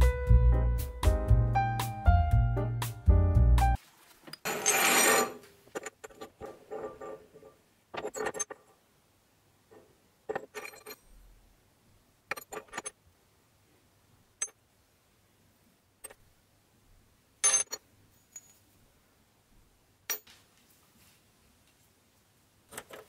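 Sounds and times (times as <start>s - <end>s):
steel parts clinking on metal table: 4.3s - 8.6s, 10.3s - 11.2s, 12.3s - 13.0s, 17.4s - 18.6s.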